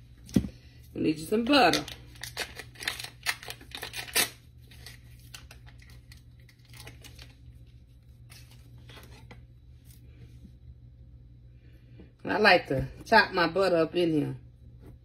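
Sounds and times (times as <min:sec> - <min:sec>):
paper wrapper ripping: 0:01.9 - 0:07.6
paper crinkling: 0:01.9 - 0:10.0.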